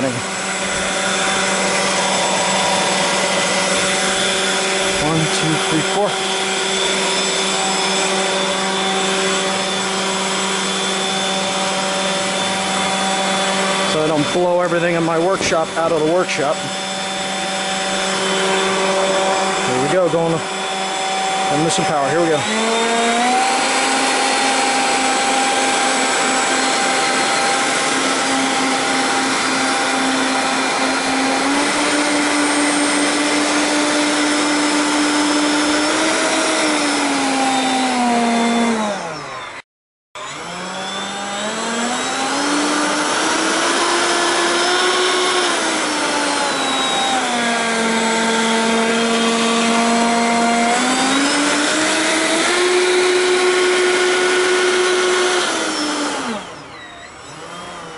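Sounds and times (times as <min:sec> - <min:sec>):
electric ducted fans whining: 0:00.0 - 0:39.6, 0:40.2 - 0:57.9.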